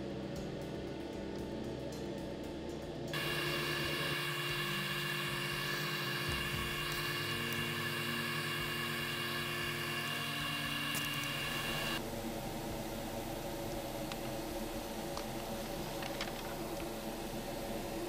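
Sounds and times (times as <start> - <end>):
low steady hum: 0.0 - 18.0
airbrush hissing: 3.2 - 12.0.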